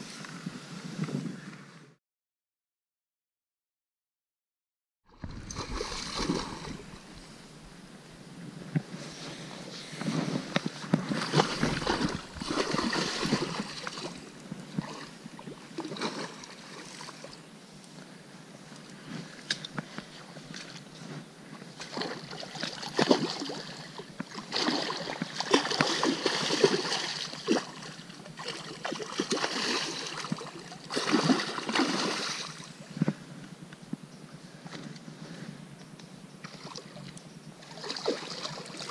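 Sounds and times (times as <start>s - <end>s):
fish splashing in water: 5.2s - 7.1s, 11.2s - 15.1s, 24.4s - 32.6s.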